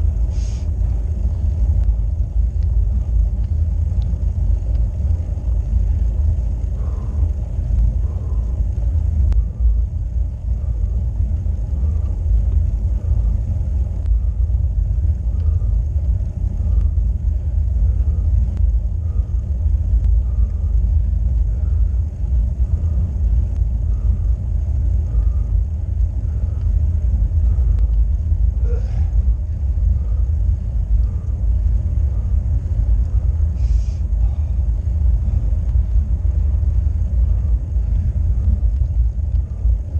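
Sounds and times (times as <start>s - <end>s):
faint light ticks: 1.8s - 5.1s, 9.2s - 9.5s, 14.0s - 14.2s, 18.5s - 18.8s, 19.9s - 20.2s, 23.5s - 23.8s, 25.9s - 26.8s, 27.5s - 28.1s, 38.4s - 39.7s.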